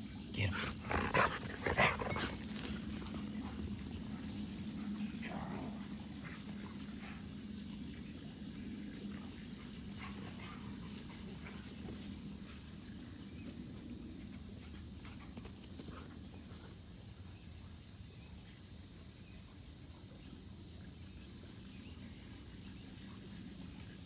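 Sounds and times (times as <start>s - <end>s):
dogs running on grass: 0.4s - 5.9s, 9.9s - 16.9s.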